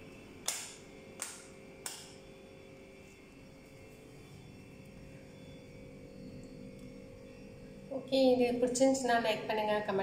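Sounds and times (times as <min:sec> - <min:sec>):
faint steady hum: 0:00.0 - 0:10.0
sharp click: 0:00.4 - 0:02.2.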